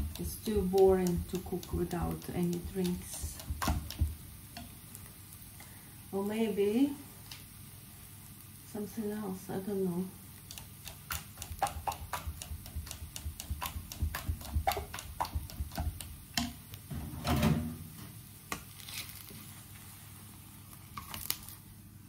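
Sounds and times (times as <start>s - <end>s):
utensil tapping a plastic bowl: 0.0s - 4.7s, 10.5s - 16.6s.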